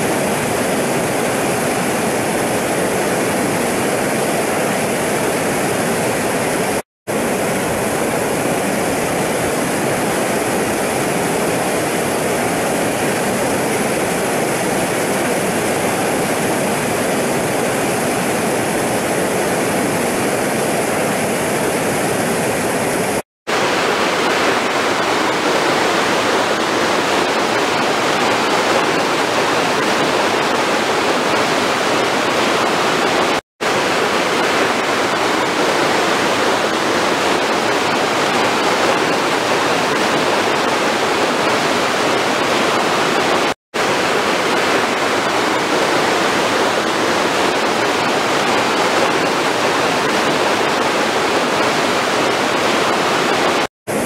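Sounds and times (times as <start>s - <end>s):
water rushing over a weir: 0.0s - 54.0s.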